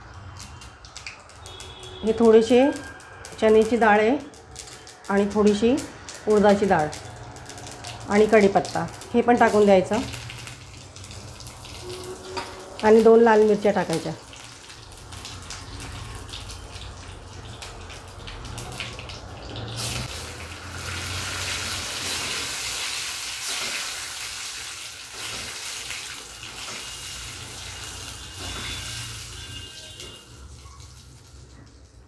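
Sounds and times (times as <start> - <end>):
spices sizzling in hot oil: 0.0 - 32.0.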